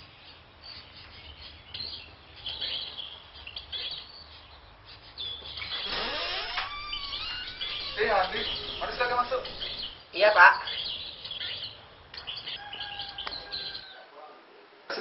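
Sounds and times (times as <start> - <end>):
small birds chirping: 0.0 - 14.1
faint background noise: 0.0 - 15.0
door creaking open: 5.6 - 10.0.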